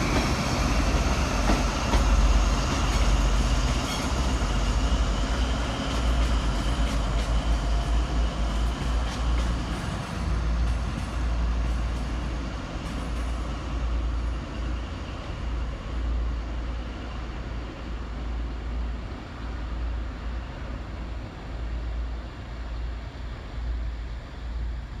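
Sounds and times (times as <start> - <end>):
train diesel engine rumbling: 0.0 - 25.0
wheel and rail noise: 0.0 - 25.0.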